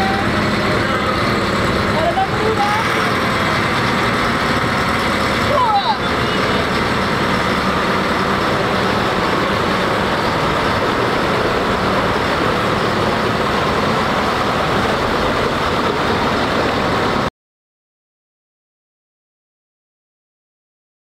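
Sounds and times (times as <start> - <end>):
boat engine running: 0.0 - 17.3
constant wash of noise: 0.0 - 17.3.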